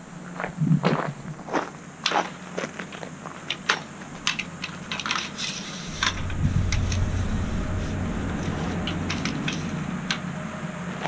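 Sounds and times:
low steady rumble: 0:03.9 - 0:11.0.

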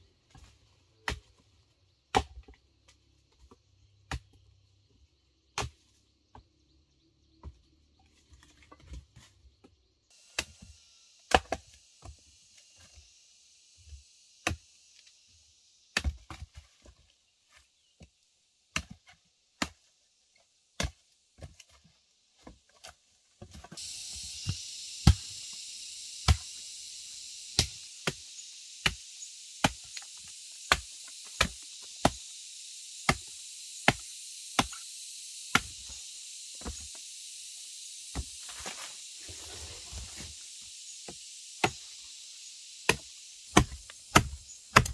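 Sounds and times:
steady high hiss: 0:10.1 - 0:16.8, 0:21.8 - 0:44.9
blade chopping wood: 0:10.3 - 0:10.7, 0:11.3 - 0:12.2, 0:22.4 - 0:25.3, 0:26.2 - 0:26.5, 0:27.5 - 0:32.3, 0:33.0 - 0:34.8, 0:35.5 - 0:36.0, 0:41.0 - 0:41.9, 0:42.8 - 0:44.9.

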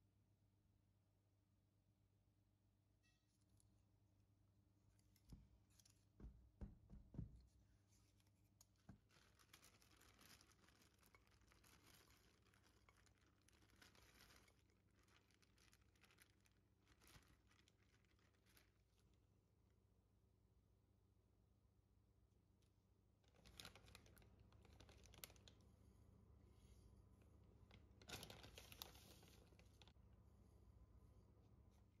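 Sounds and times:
cherries rustling into frying pan: 0:08.6 - 0:18.9.

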